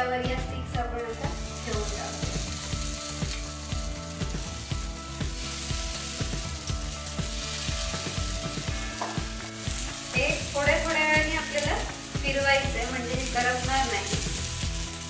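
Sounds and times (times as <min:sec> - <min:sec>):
skewers sizzling in oil: 0:01.0 - 0:15.0
skewers tapping on pan: 0:05.2 - 0:15.0.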